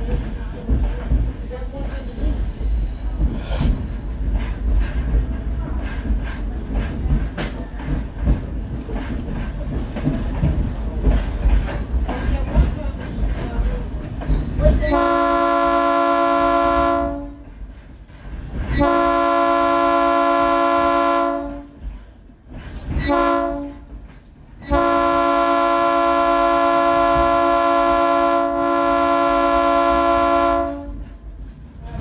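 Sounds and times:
train air horn blasts: 14.9s - 17.4s, 18.7s - 21.8s, 23.0s - 23.9s, 24.7s - 31.1s.

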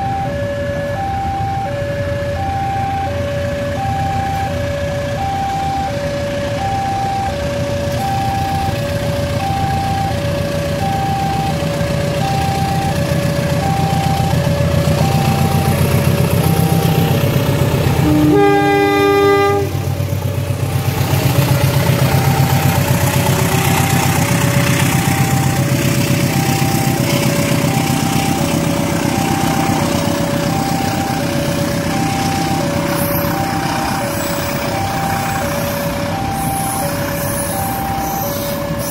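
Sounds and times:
level-crossing alarm: 0.0s - 38.9s
locomotive engine drone: 0.0s - 38.9s
two-note train horn: 15.3s - 20.3s.

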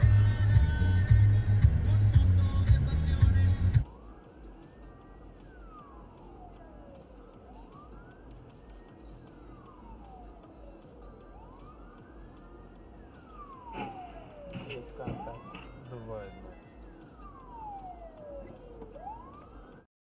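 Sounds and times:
low rumble inside car: 0.0s - 4.2s
emergency vehicle siren wailing: 0.0s - 19.9s.

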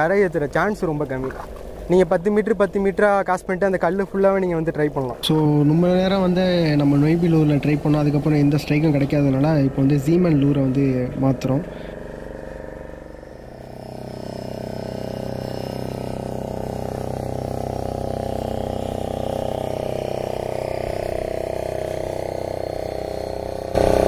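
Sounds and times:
fishing reel whirring: 5.2s - 24.0s.

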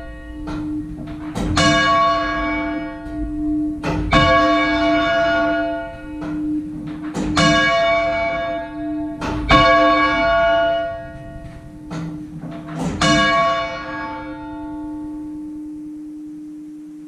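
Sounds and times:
church bell striking: 0.0s - 17.0s
steady hum: 0.0s - 17.0s.

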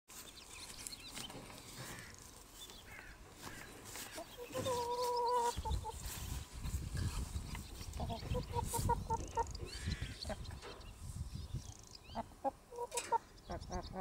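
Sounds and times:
hens clucking softly: 3.9s - 6.1s, 7.5s - 10.8s, 12.2s - 14.0s.

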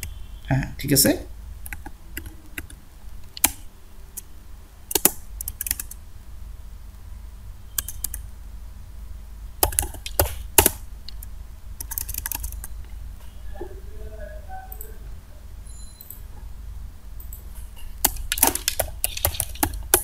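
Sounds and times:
low steady hum: 0.0s - 20.0s
keyboard keys clicking: 4.9s - 6.0s, 7.8s - 8.2s, 9.6s - 12.7s, 17.2s - 20.0s.

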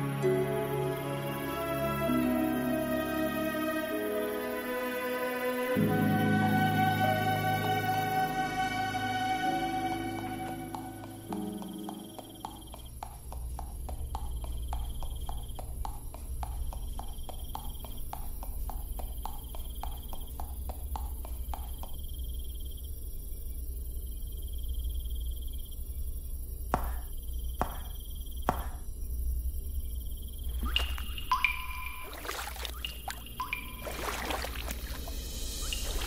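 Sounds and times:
low ambient drone: 0.0s - 12.7s, 28.8s - 36.0s
sharp footfalls: 26.7s - 28.9s
faint pulsing high tone: 30.5s - 36.0s.

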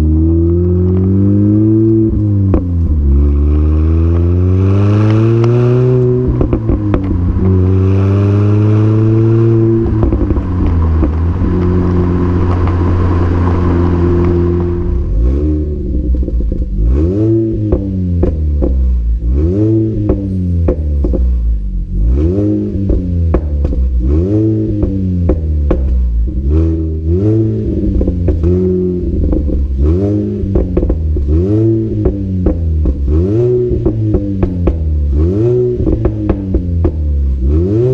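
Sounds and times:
car engine accelerating: 0.0s - 37.9s
engine revving in blips: 0.0s - 37.9s.

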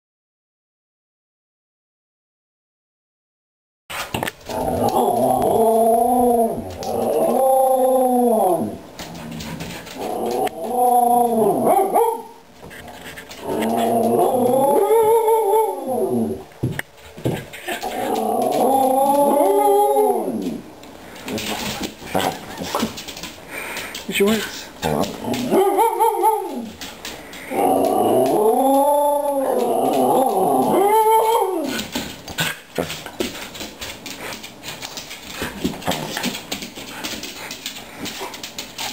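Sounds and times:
dog howling: 4.5s - 8.9s, 10.0s - 12.4s, 13.4s - 16.5s, 17.8s - 20.7s, 25.1s - 26.8s, 27.4s - 31.9s.

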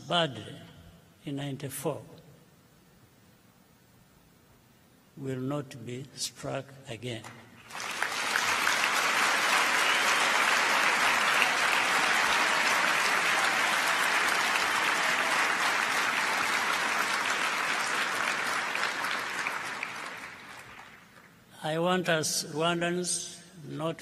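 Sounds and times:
audience applauding: 7.6s - 21.4s.

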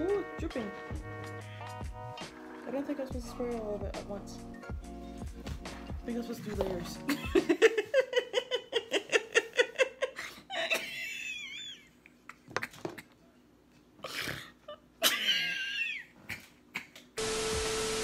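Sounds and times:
woman laughing: 7.0s - 13.1s, 14.6s - 17.2s.

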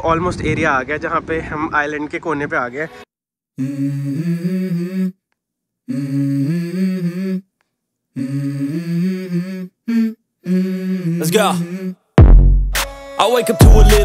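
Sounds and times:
wordless hummed vocal melody: 3.6s - 5.2s, 5.8s - 7.5s, 8.2s - 12.0s, 13.3s - 14.0s.

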